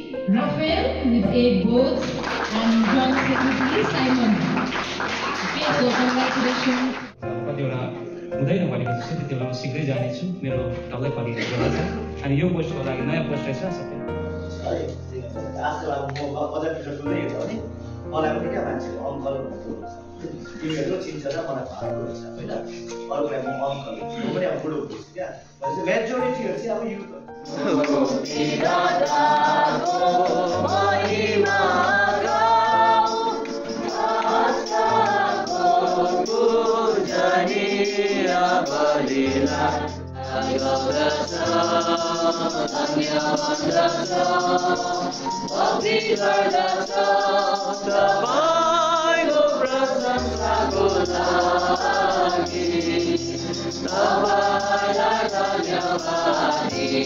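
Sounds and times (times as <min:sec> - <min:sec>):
group singing a hymn: 0:01.7 - 0:07.2, 0:27.4 - 0:57.0.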